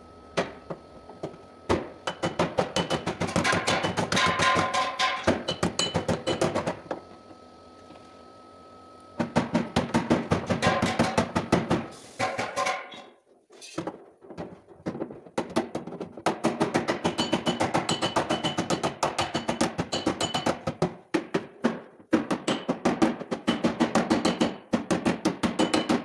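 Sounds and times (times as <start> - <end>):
hammer tapping on sheet metal: 1.7 - 6.7, 9.2 - 13.1, 15.4 - 26.0.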